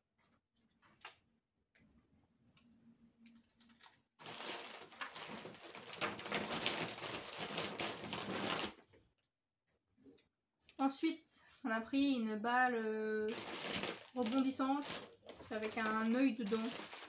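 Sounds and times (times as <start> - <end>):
plastic bag rustling: 3.7 - 8.8, 13.3 - 17.0.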